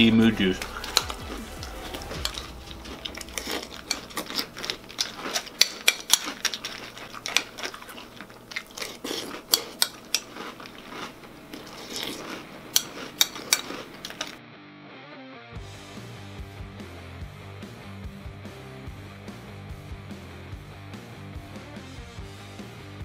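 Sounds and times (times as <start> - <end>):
crunchy cereal being chewed: 0.6 - 14.4.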